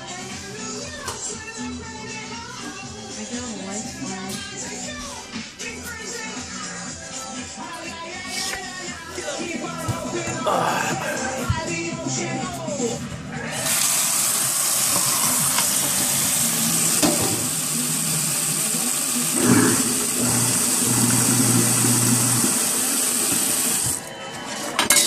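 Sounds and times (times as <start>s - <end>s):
tap water running into drain: 13.6s - 24.1s.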